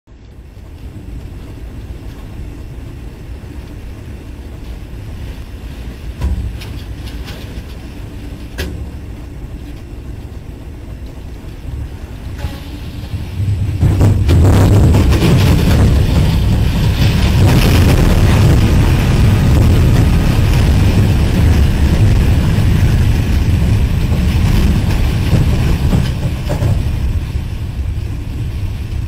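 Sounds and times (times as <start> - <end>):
wind and rain rumble: 0.1 - 29.0
sharp knocks: 6.2 - 6.8.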